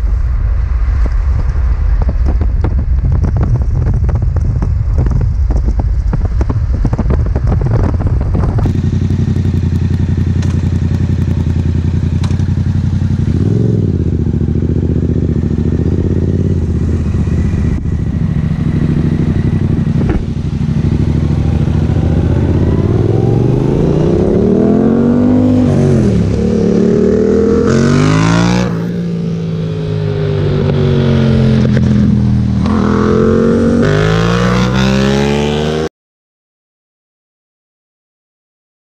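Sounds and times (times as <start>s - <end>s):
wind buffeting microphone: 0.0s - 10.3s, 13.4s - 28.8s
motorcycle engine accelerating: 2.0s - 35.9s.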